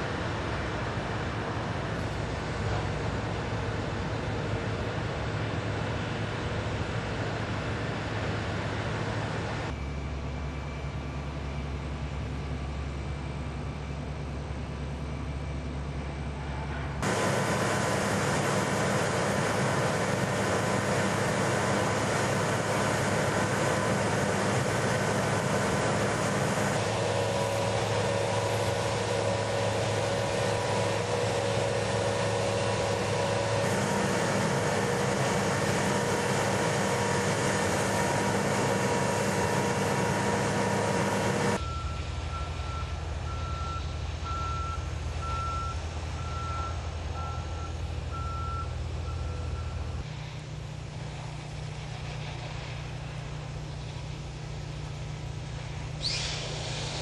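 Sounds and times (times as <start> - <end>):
heavy construction machinery running: 0.0 - 57.0
reversing alarm beeps: 41.6 - 50.0.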